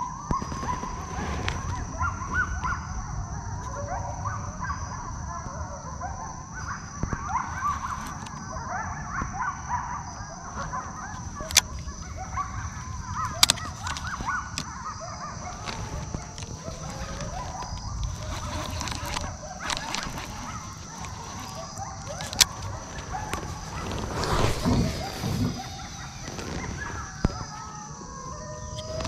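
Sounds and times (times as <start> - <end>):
wild birds calling: 0.0 - 29.0
sharp clicks: 10.6 - 14.8, 15.4 - 27.8
high thin whine: 20.2 - 27.7.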